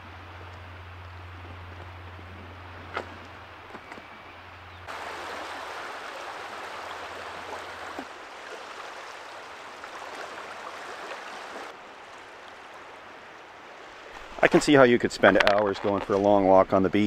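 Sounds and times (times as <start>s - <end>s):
small waves lapping on pebbles: 4.9s - 14.8s.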